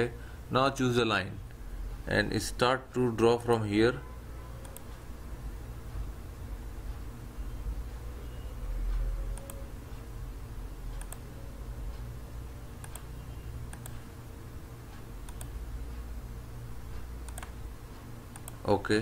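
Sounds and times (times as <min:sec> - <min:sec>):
faint low hum: 0:00.0 - 0:19.0
computer mouse clicking: 0:04.6 - 0:05.0, 0:09.0 - 0:09.7, 0:10.9 - 0:11.3, 0:12.8 - 0:13.1, 0:13.7 - 0:14.0, 0:15.2 - 0:15.6, 0:16.9 - 0:17.6, 0:18.3 - 0:18.7.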